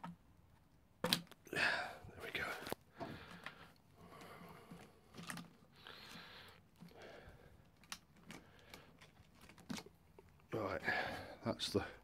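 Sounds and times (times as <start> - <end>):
gloved hands rustling: 2.2 - 11.4.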